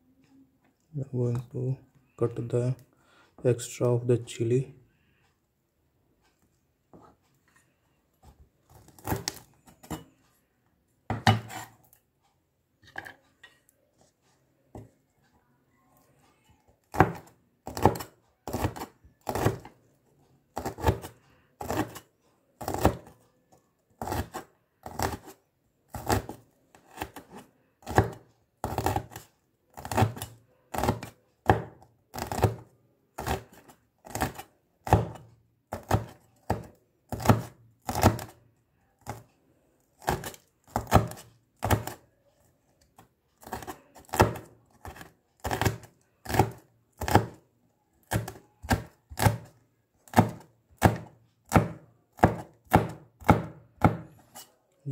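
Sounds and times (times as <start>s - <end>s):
cleaver chopping on cutting board: 11.1s - 11.7s, 17.0s - 19.7s, 26.0s - 29.2s, 29.8s - 32.6s, 34.1s - 38.3s, 40.0s - 42.0s, 43.4s - 47.4s, 48.0s - 49.5s, 50.1s - 54.1s.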